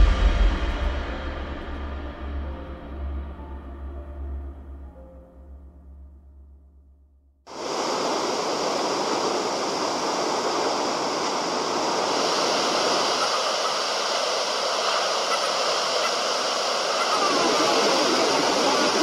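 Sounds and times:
heavy surf breaking: 0.0s - 3.9s, 7.5s - 19.0s.

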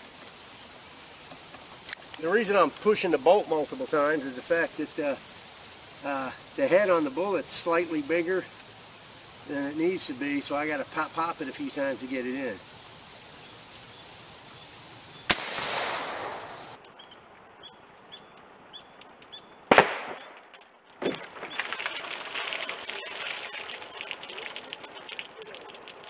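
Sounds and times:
water splattering onto wooden boards: 1.2s - 12.6s, 16.7s - 26.0s
air rifle shot with hissing tail: 15.3s - 16.8s.

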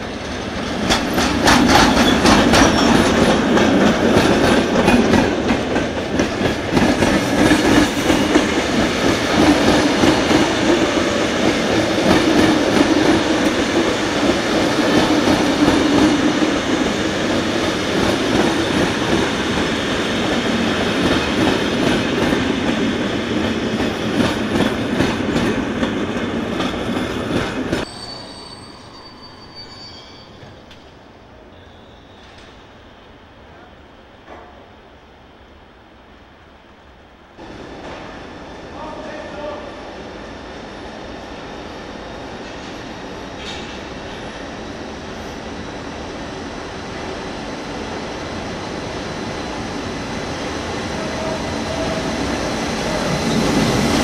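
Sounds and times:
passenger train passing: 0.0s - 54.0s
wheels clicking over rail joints: 0.2s - 7.1s.

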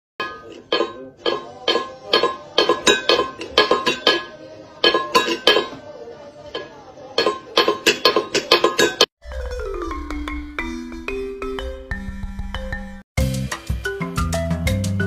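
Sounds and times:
metal bowl clanking on tiles: 0.2s - 12.5s
marimba-style music: 8.8s - 15.0s.

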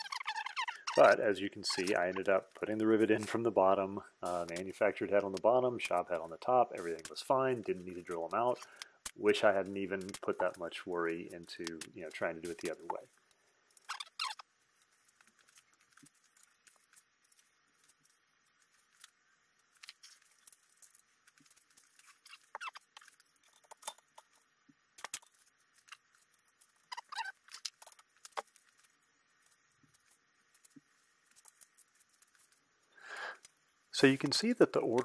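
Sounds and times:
metal parts clicking and scraping: 8.0s - 32.6s.

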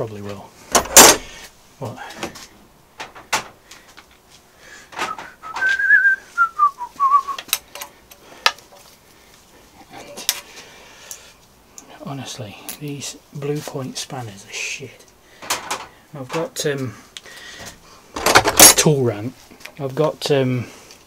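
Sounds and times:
person whistling a tune: 5.1s - 7.5s.

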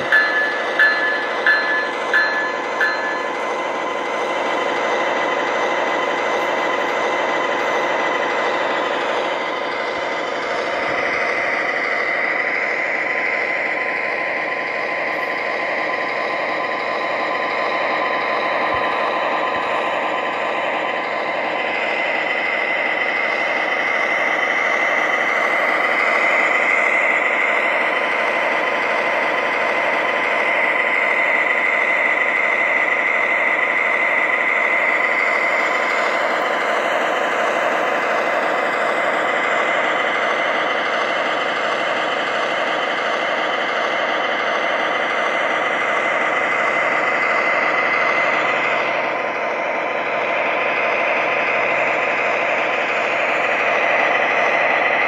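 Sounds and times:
high whine: 0.0s - 14.4s
diesel engine idling: 0.0s - 55.0s.

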